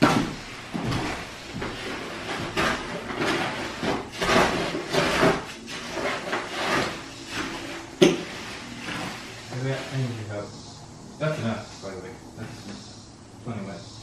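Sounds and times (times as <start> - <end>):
tool scraping wet concrete: 0.0 - 10.5.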